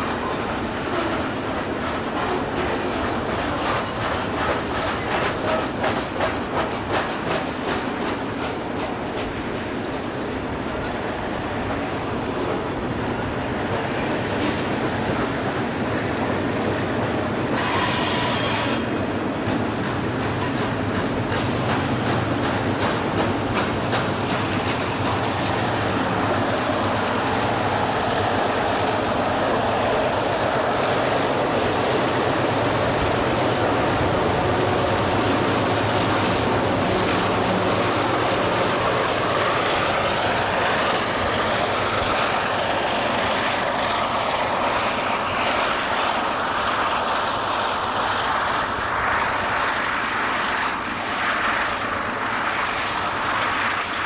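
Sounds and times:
diesel locomotives droning: 0:00.0 - 0:54.0.

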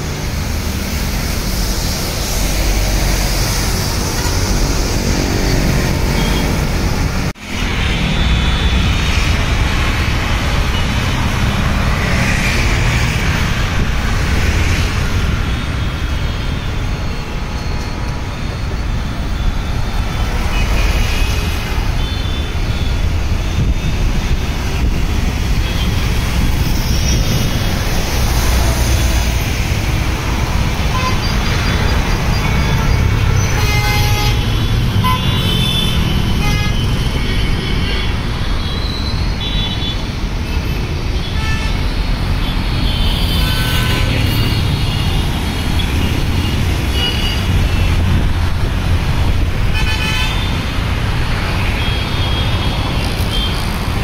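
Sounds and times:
traffic rumble on wet road: 0:00.0 - 0:54.0
vehicle horns honking: 0:30.9 - 0:40.0, 0:40.6 - 0:45.2, 0:45.8 - 0:48.0, 0:49.7 - 0:50.6.

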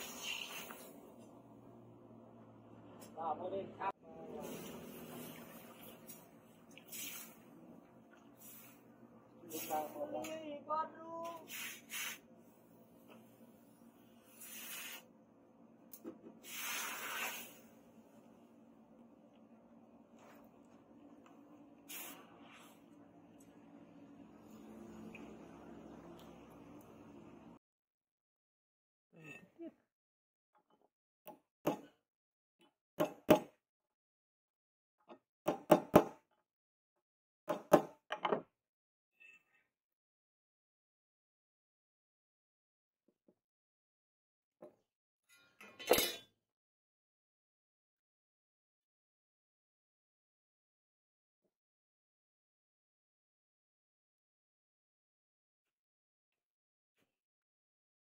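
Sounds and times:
hot steel hissing in water: 0:00.0 - 0:01.0, 0:06.8 - 0:07.5, 0:11.4 - 0:12.2, 0:14.2 - 0:15.1, 0:16.4 - 0:17.8, 0:21.9 - 0:22.8.

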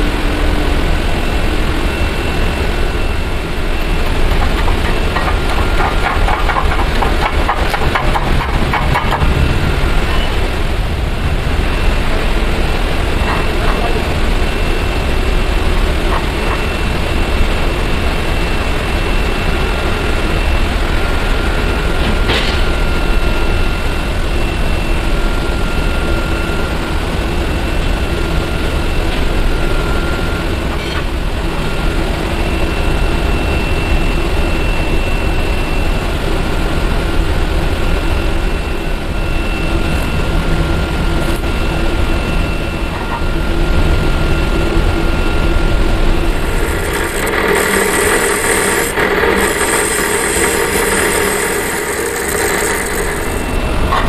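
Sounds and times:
loud machine drone: 0:00.0 - 0:54.0
thin whine: 0:00.0 - 0:54.0.

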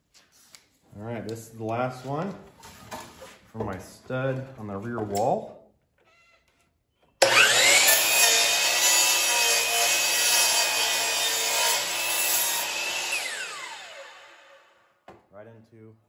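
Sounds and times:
miter saw motor whine: 0:07.2 - 0:08.7
saw cutting through wood: 0:07.2 - 0:14.8.

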